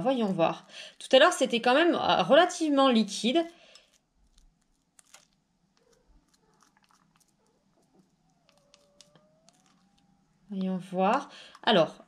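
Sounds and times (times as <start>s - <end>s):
slime clicks and squelches: 3.8s - 10.0s.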